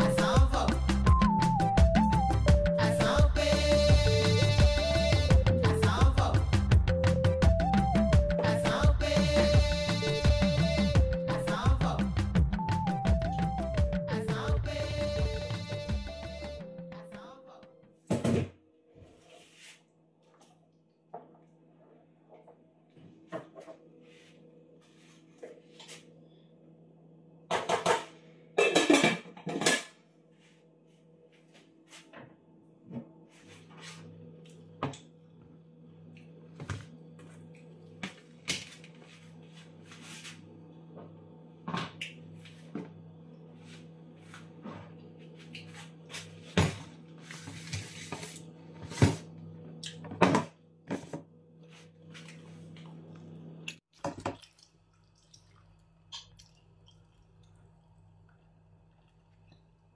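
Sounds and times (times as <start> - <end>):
quiet background music with beat: 0.0 - 17.8
metal pots and utensils clattering: 27.5 - 30.0.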